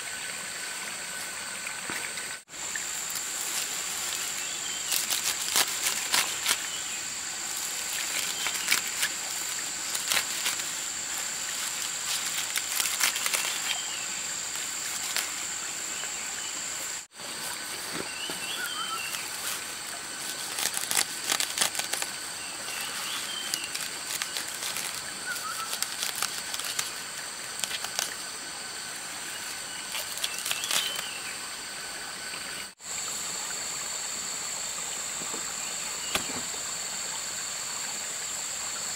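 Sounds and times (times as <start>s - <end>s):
rustling and clicking: 7.7s - 13.8s, 20.3s - 22.1s, 23.2s - 27.0s.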